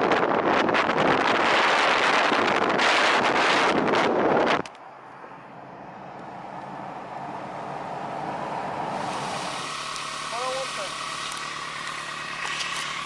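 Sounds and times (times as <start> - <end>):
wind buffeting microphone: 0.0 - 9.7
faint vehicle hum: 0.0 - 13.0.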